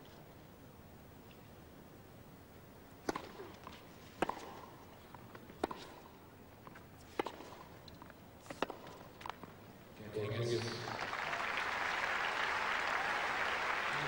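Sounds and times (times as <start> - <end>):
ball bouncing on court: 3.0 - 3.6, 4.2 - 4.7, 7.2 - 7.6, 8.5 - 9.5
racket striking tennis ball: 3.0 - 9.6.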